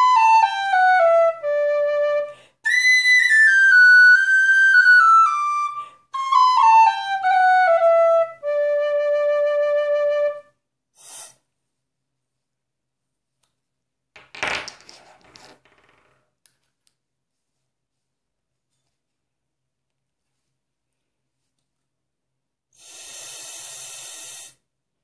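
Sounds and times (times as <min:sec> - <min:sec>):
tin whistle playing notes: 0:00.0 - 0:10.4.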